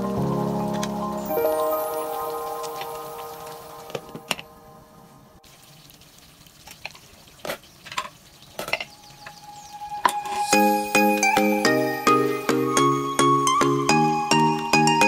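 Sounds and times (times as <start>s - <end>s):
stew simmering in a pot: 5.4s - 10.0s.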